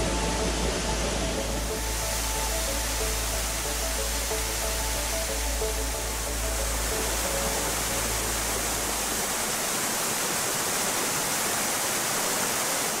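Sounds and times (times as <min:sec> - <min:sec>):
background music: 0:00.0 - 0:09.6
waterfall rushing: 0:00.0 - 0:13.0.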